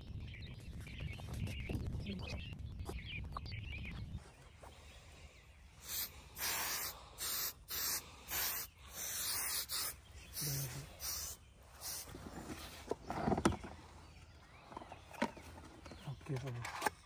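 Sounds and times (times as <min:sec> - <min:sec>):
spray bottle spraying mist: 0:05.8 - 0:12.2.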